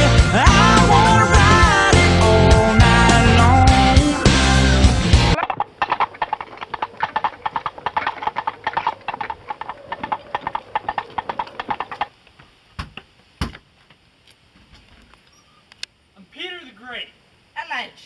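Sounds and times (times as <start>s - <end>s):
rapid hollow clopping knocks: 5.4s - 13.6s.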